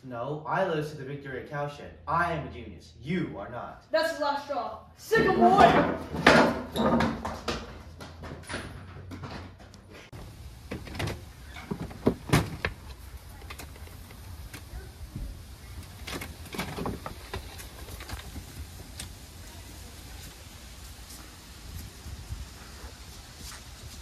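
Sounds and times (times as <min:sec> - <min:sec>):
door knocks and thumps: 0:10.7 - 0:12.8.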